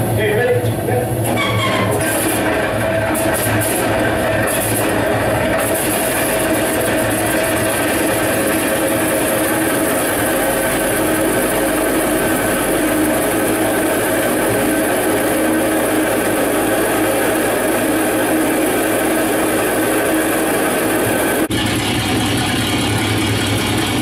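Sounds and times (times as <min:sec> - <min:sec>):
different engine sound: 0:00.0 - 0:24.0
piston aircraft engine running: 0:00.0 - 0:24.0.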